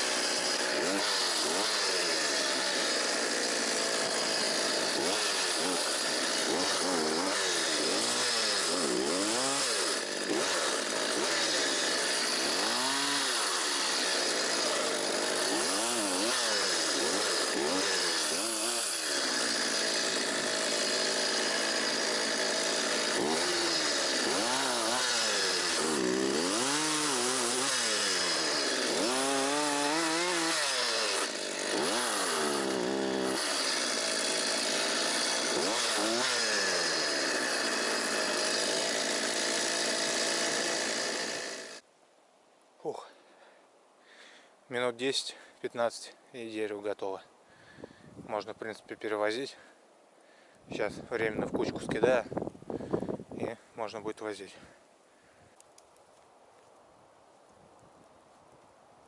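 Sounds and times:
chainsaw cutting wood: 0.0s - 41.9s.

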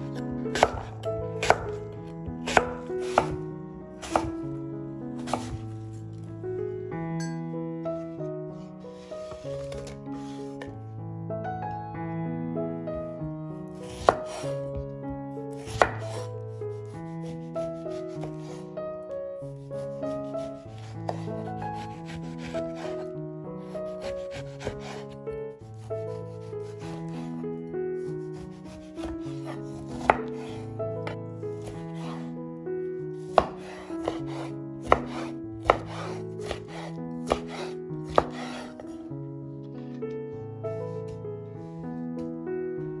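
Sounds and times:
background music sustained notes: 0.0s - 43.0s
knife cutting and scraping peel: 20.2s - 23.1s, 23.9s - 25.2s, 26.1s - 27.3s, 28.2s - 30.6s, 33.3s - 38.8s.

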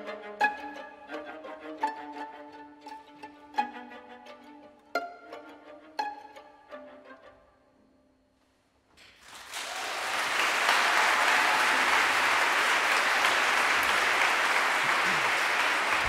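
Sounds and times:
audience applause: 9.2s - 16.0s.

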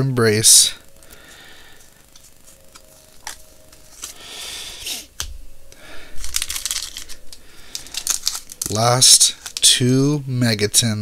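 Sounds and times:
cards sliding: 2.1s - 5.3s, 6.2s - 8.7s
trading cards clicking: 6.2s - 9.8s.

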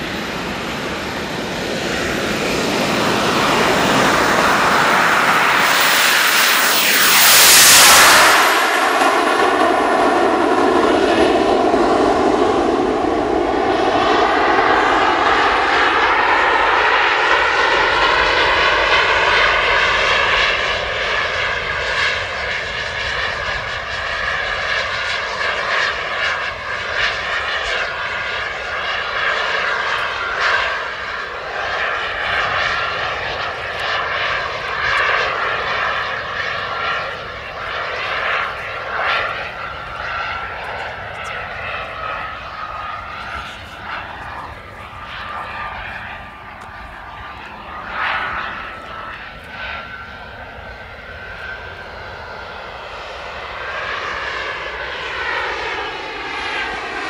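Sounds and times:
jet turbines roaring: 0.0s - 57.0s
turbine whine: 0.0s - 57.0s.

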